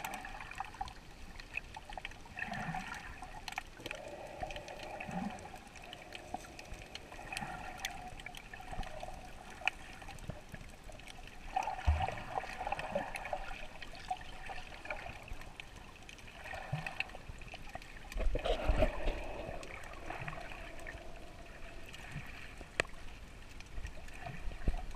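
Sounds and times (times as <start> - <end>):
muffled underwater gurgling: 18.1 - 22.6
faint clicks: 22.6 - 24.0.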